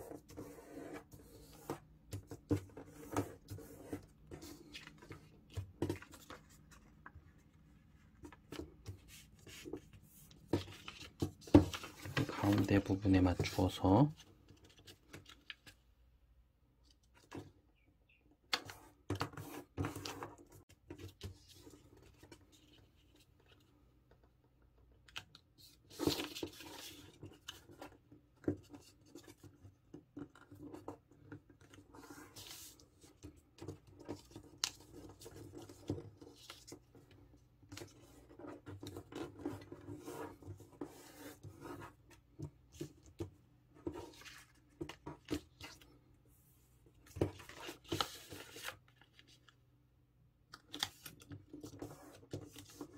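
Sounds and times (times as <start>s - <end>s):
paper rustling and crinkling: 2.1s - 15.8s, 25.1s - 29.5s, 30.2s - 42.0s, 42.7s - 46.0s, 47.0s - 49.6s, 50.5s - 52.9s.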